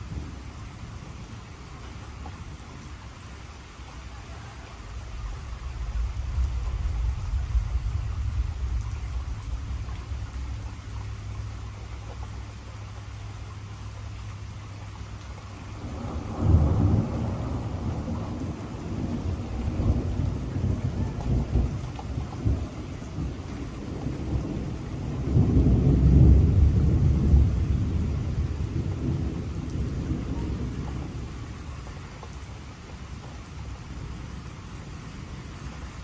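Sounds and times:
steady rain: 0:00.0 - 0:36.0
rolling thunder: 0:04.9 - 0:12.0, 0:15.6 - 0:31.6.

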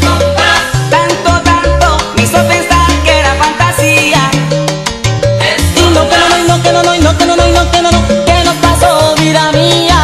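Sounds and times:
salsa band playing: 0:00.0 - 0:10.0.

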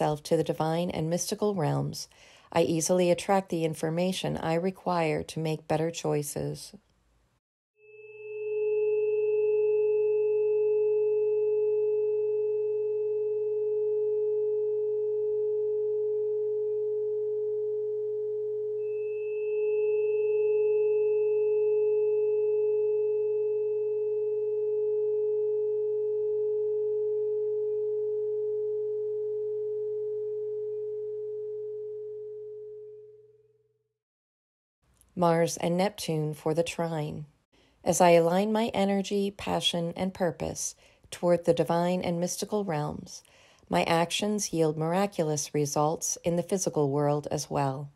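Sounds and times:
steady electronic sine tones: 0:07.8 - 0:33.4.

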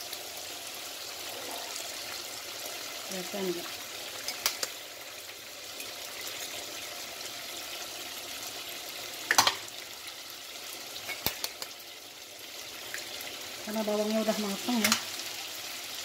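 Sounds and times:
food sizzling in hot oil: 0:00.0 - 0:16.0
pot clatter: 0:09.3 - 0:09.7, 0:11.0 - 0:11.8.

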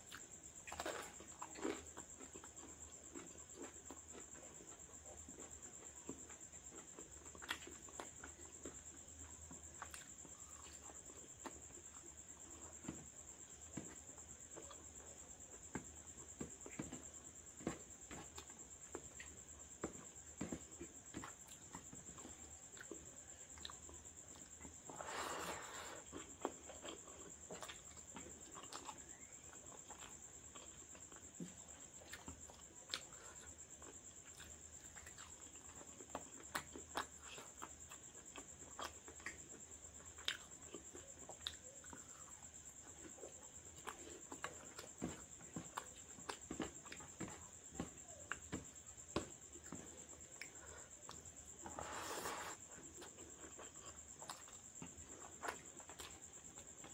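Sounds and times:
chewing and mouth sounds: 0:00.0 - 0:56.9.

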